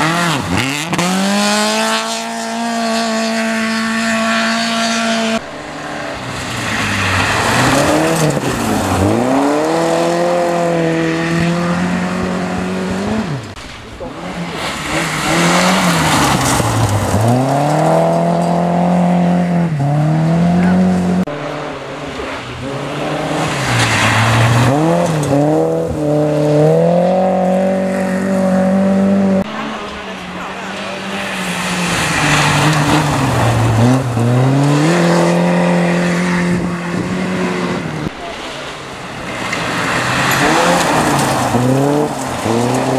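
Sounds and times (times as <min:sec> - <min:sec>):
rally car engines revving: 0:00.0 - 0:42.9
tyres scrabbling on gravel: 0:14.0 - 0:18.6, 0:39.3 - 0:42.9.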